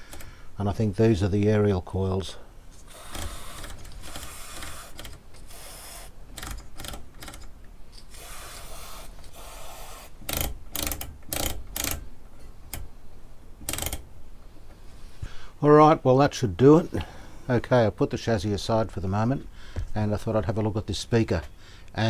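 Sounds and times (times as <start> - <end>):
aerosol spray hissing: 8.2 - 10.2
rotary switch clicking: 10.2 - 12.0, 13.6 - 14.1.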